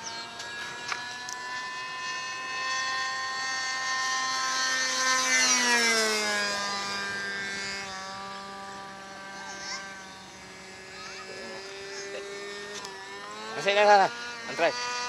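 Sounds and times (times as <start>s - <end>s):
model plane engine buzzing: 0.0s - 15.0s.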